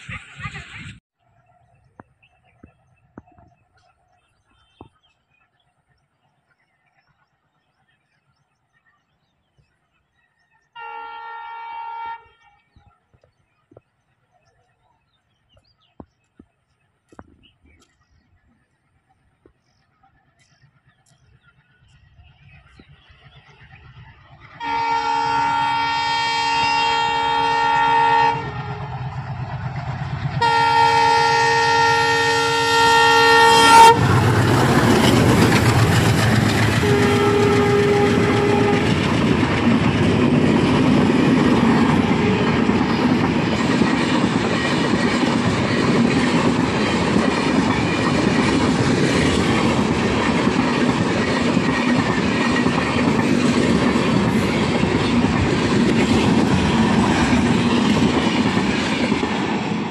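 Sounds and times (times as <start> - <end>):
long multi-note train horn: 10.8 - 12.7, 24.6 - 29.2, 30.4 - 35.0, 36.7 - 39.2, 42.0 - 42.9
diesel locomotive engine rumbling: 11.7 - 59.9.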